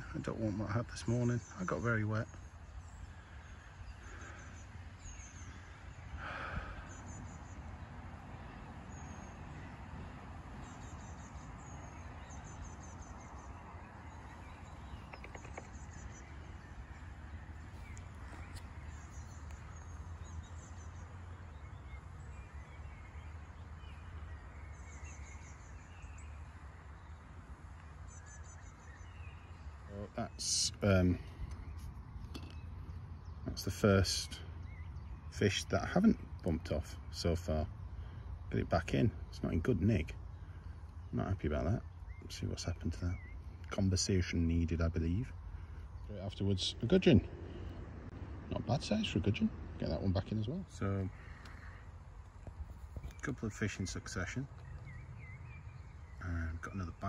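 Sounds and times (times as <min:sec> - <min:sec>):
outdoor rumble and hiss: 0:00.0 - 0:57.0
small birds chirping: 0:00.0 - 0:57.0
low steady rumble: 0:44.8 - 0:57.0.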